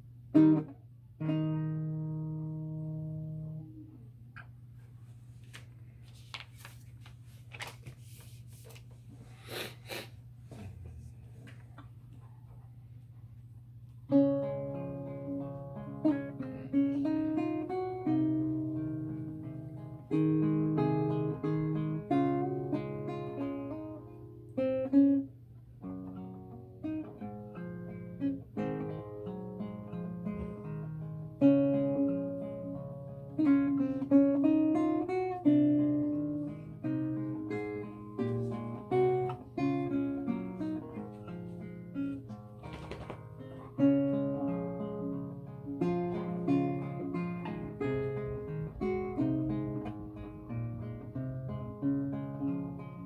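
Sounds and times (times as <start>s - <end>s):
classical guitar fingerstyle: 0.0s - 4.6s, 13.9s - 53.0s.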